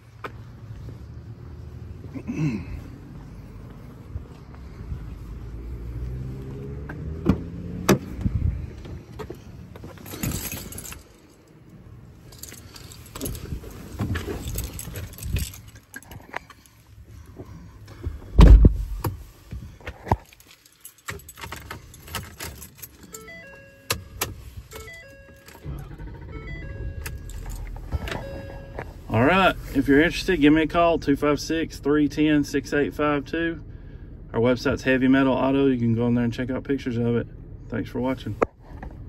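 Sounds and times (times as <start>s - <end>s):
car door shutting: 6.8s - 8.3s, 18.3s - 19.2s, 23.2s - 29.0s
keys jangling: 9.8s - 16.8s, 20.1s - 25.7s, 26.9s - 28.9s
electronic chime tones: 24.8s - 28.9s.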